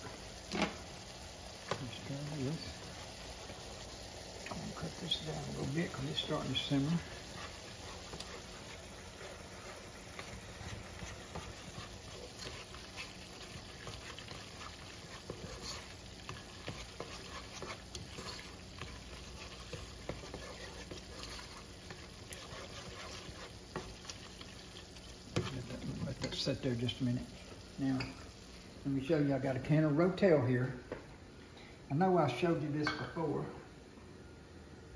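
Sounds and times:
low sizzle of meat simmering: 0.0s - 34.9s
plastic spoon stirring in pot: 4.4s - 26.6s.

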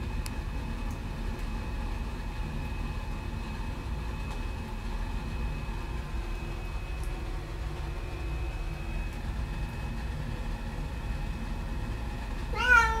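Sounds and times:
steady low hum: 0.0s - 13.0s
cat meowing: 12.5s - 13.0s.

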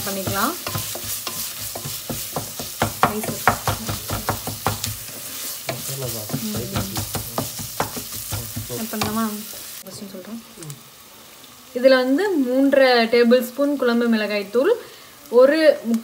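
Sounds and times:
wooden spatula knocking a pot: 0.0s - 9.2s
frying sizzle: 0.0s - 16.0s.

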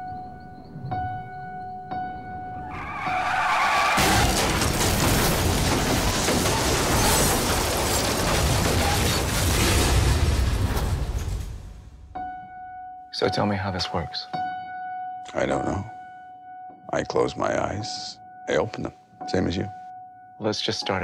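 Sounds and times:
car tyres screeching: 2.6s - 4.7s
car crash crunching impacts: 2.8s - 12.1s.

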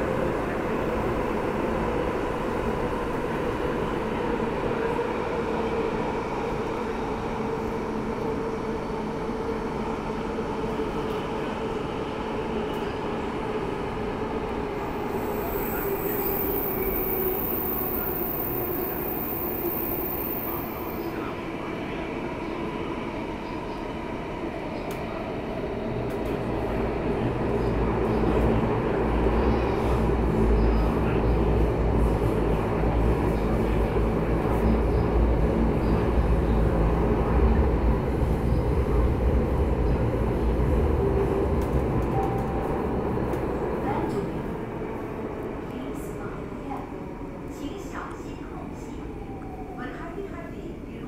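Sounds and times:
train wheels rumbling on rail: 0.0s - 49.6s.

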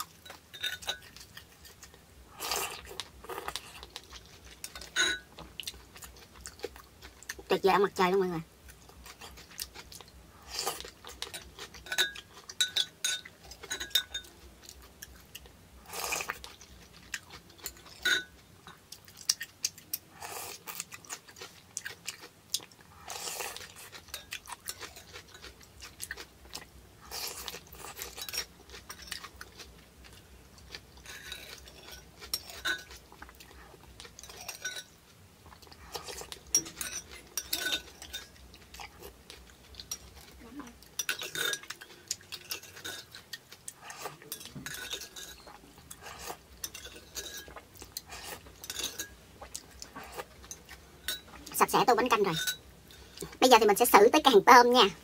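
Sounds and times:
chewing and slurping: 0.0s - 7.5s, 8.7s - 53.4s
metal spoon clinking on pot: 0.2s - 1.1s, 4.6s - 5.3s, 11.8s - 14.3s, 17.7s - 18.3s, 34.2s - 34.9s, 36.5s - 38.4s, 48.6s - 49.2s, 52.3s - 52.6s.

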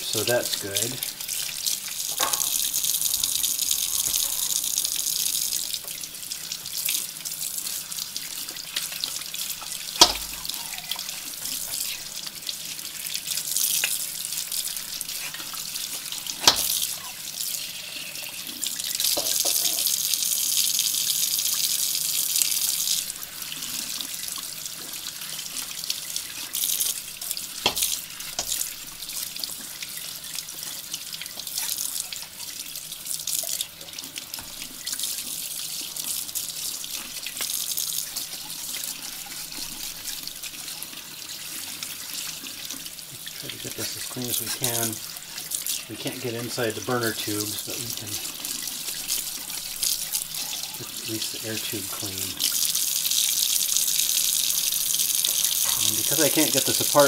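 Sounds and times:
tap water running into sink: 0.0s - 57.0s
water splashing over metal parts: 2.1s - 4.6s, 8.7s - 11.9s, 15.1s - 17.1s, 27.6s - 28.9s, 42.3s - 52.3s, 55.2s - 57.0s.

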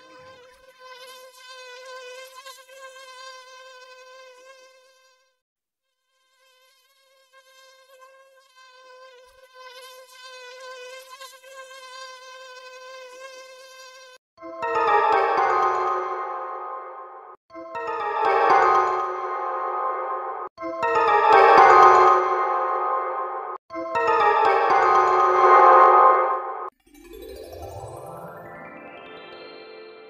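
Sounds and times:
mosquito whining buzz: 0.0s - 14.2s.

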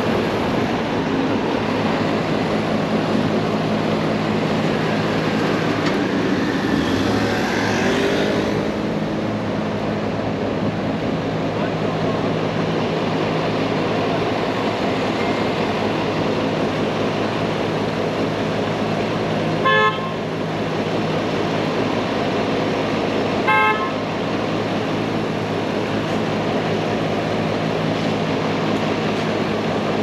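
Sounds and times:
street traffic noise: 0.0s - 30.0s
car horn toots: 19.6s - 20.2s, 23.4s - 24.0s.

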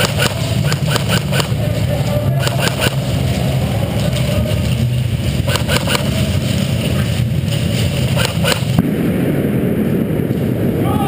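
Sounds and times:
airsoft guns firing: 0.0s - 1.7s, 2.3s - 3.2s, 5.4s - 6.2s, 8.1s - 10.1s
steady low rumble: 0.0s - 11.0s.

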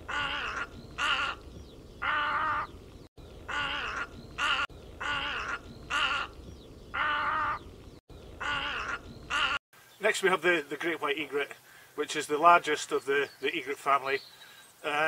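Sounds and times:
egret croaking: 0.0s - 1.4s, 3.4s - 7.7s, 8.4s - 9.6s.

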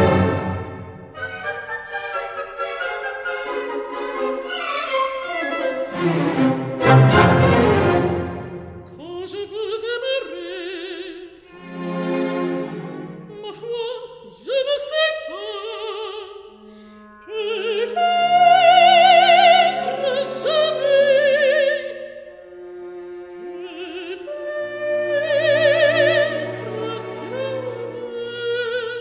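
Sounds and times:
orchestral accompaniment: 0.0s - 9.4s, 11.5s - 13.6s.

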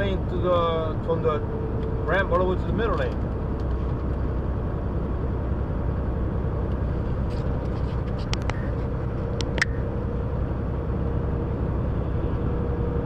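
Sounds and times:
truck engine and tyres rumbling: 0.0s - 13.0s
sharp clicks: 9.3s - 9.8s.

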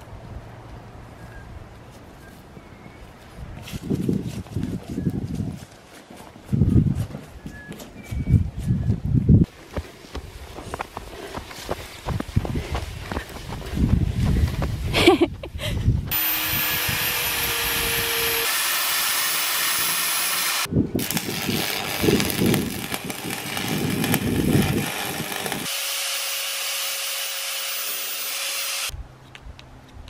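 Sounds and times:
angle grinder whine on metal: 16.1s - 28.9s
welding arc crackling: 16.1s - 28.9s
steady grinding noise: 16.1s - 29.0s.

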